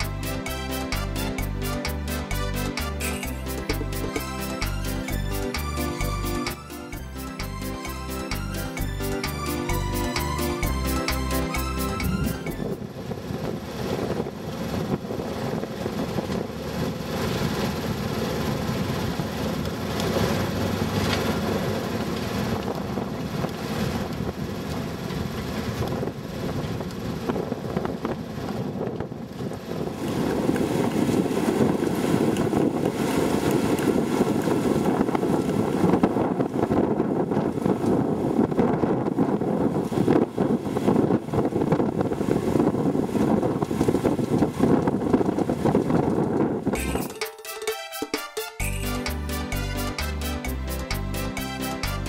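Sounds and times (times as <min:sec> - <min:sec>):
steady low drone: 0:00.0 - 0:13.9, 0:48.6 - 0:52.0
wind buffeting microphone: 0:06.9 - 0:46.8.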